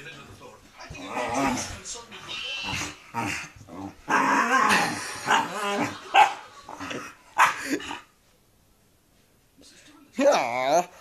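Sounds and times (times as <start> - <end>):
dog growling and yapping: 0.8 - 8.0.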